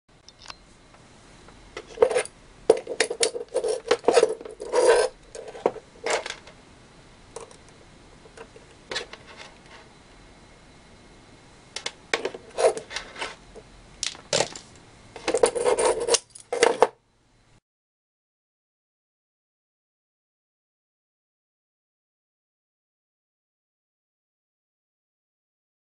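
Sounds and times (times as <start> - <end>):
small parts clinking on wooden table: 1.8 - 6.5, 14.0 - 17.0.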